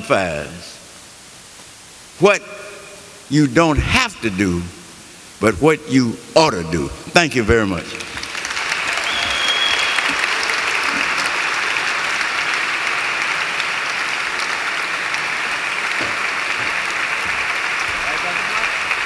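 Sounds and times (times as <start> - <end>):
audience applauding: 7.7 - 19.0
high whistle: 9.0 - 10.4.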